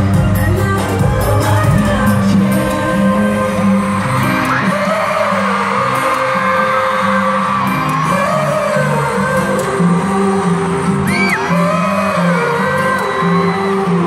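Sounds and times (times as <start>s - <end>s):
pop song with bass-heavy beat: 0.0s - 14.0s
fans whooping and screaming: 3.4s - 14.0s.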